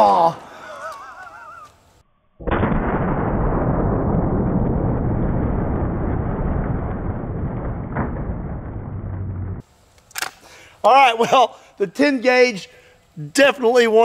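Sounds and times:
deep even rumble: 0:02.4 - 0:09.6
slowed shotgun blast boom: 0:02.4 - 0:09.6.

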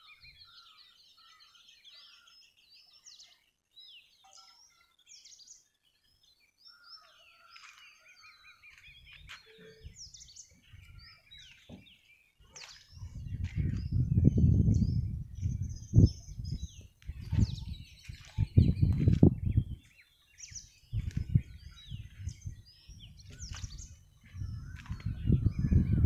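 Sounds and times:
small birds chirping: 0:00.0 - 0:26.0
wind buffeting the microphone: 0:08.4 - 0:26.0.

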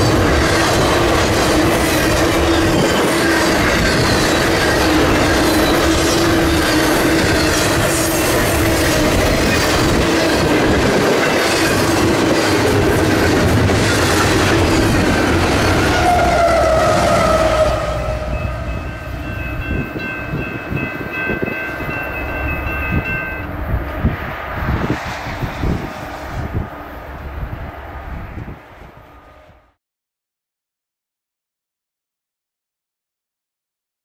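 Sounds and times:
freight train wheels clattering over rails: 0:00.0 - 0:16.8
train wheel squeal: 0:00.0 - 0:24.1
grade-crossing bell ringing: 0:00.0 - 0:24.3.

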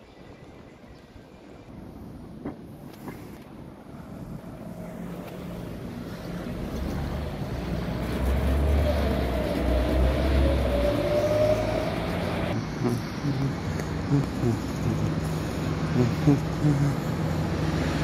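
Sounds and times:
motor vehicle passing: 0:04.2 - 0:18.0.

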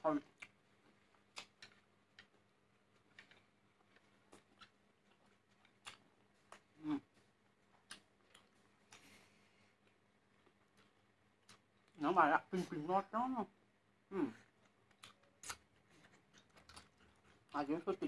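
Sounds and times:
chewing mouth clicks: 0:00.3 - 0:06.7, 0:07.7 - 0:09.2, 0:14.5 - 0:17.5.

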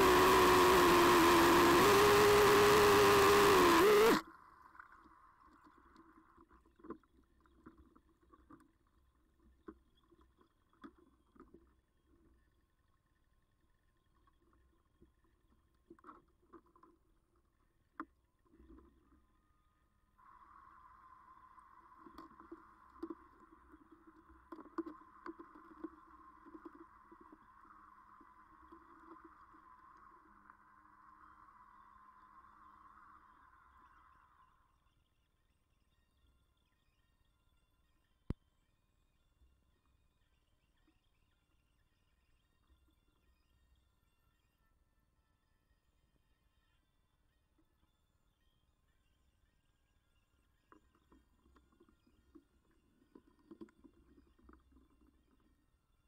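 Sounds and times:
outboard engine running: 0:00.0 - 0:04.2
faint steady hum: 0:00.0 - 0:56.0.

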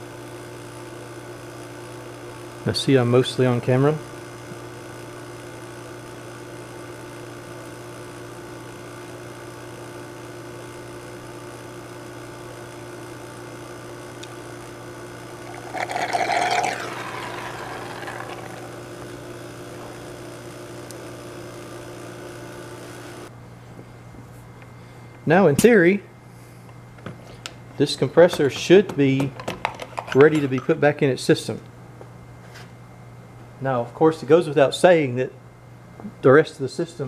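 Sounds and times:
vacuum pump humming: 0:15.4 - 0:20.0
rushing slurp of air: 0:15.5 - 0:18.9.

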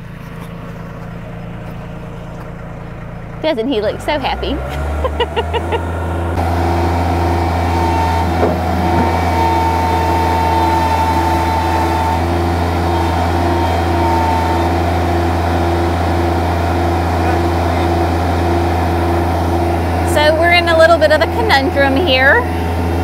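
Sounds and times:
loader engine humming: 0:00.0 - 0:23.0
high whine: 0:05.2 - 0:23.0.

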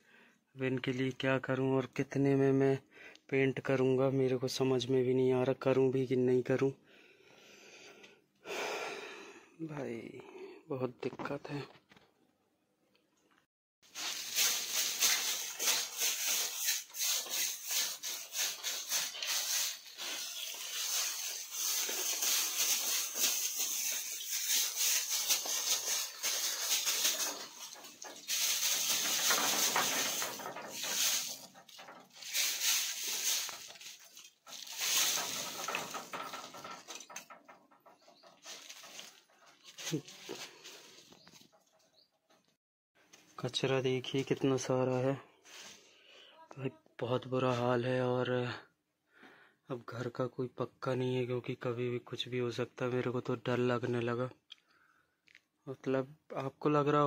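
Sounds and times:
rough scraping and brushing: 0:13.9 - 0:41.5.

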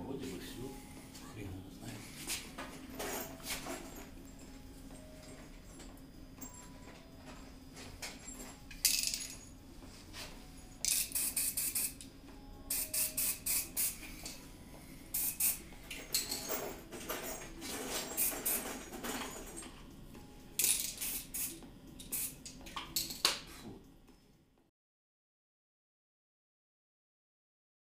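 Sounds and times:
spray-paint can hissing: 0:10.8 - 0:12.0, 0:12.7 - 0:14.1, 0:15.1 - 0:15.6, 0:18.1 - 0:18.7, 0:20.6 - 0:22.6.

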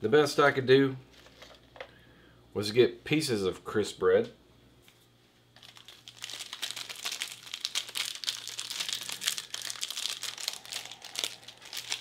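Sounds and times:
plastic wrappers crinkling: 0:05.6 - 0:12.0.

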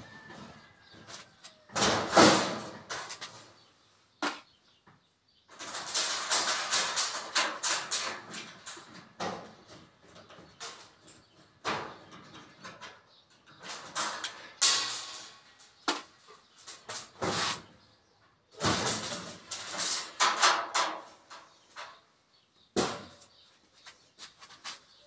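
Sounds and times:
tool scraping sheet metal: 0:16.7 - 0:17.7.

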